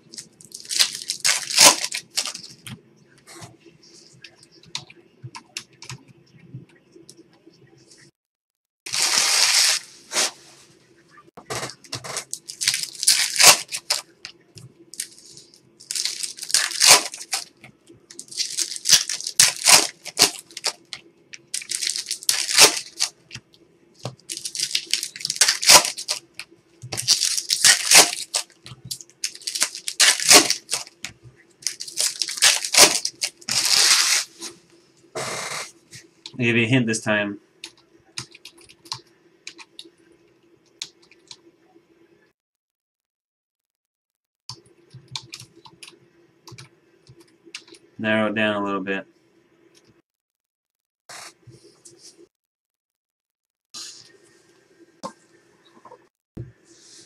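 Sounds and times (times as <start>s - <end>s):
foil packs crinkling: 0.0s - 2.6s, 8.9s - 10.4s, 11.6s - 14.1s, 14.9s - 17.5s, 18.1s - 23.2s, 24.0s - 31.0s, 31.6s - 34.4s
faint steady hum: 0.0s - 8.2s, 8.9s - 42.3s, 44.5s - 50.0s.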